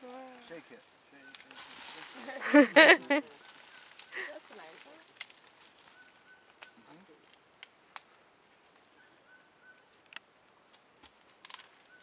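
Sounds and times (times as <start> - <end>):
insects droning: 0.0 - 12.0
faint sharp clicks: 6.6 - 8.2.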